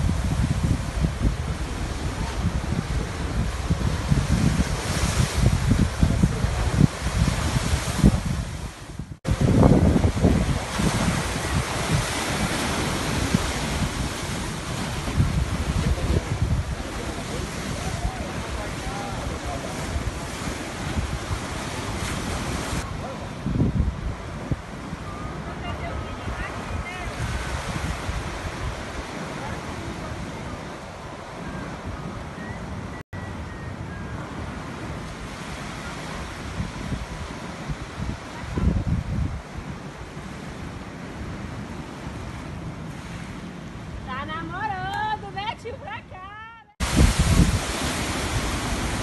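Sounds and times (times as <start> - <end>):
surf breaking over rocks: 0.0 - 24.4, 46.8 - 49.0
wind buffeting microphone: 0.0 - 49.0.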